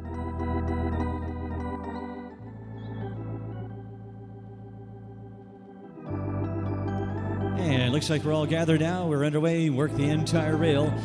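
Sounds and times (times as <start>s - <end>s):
organ music: 0.0s - 11.0s.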